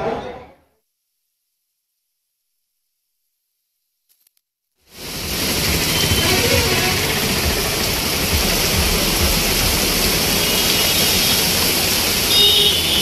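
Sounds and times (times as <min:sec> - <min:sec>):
heavy rain on road: 0:04.9 - 0:13.0
traffic on wet street: 0:04.9 - 0:13.0.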